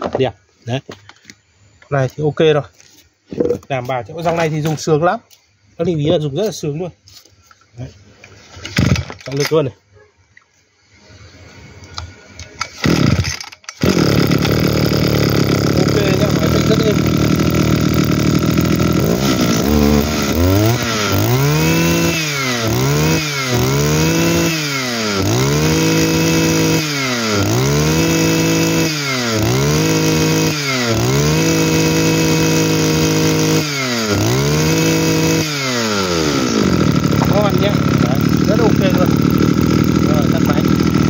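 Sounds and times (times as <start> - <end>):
two-stroke engine revving: 12.6 - 41.0.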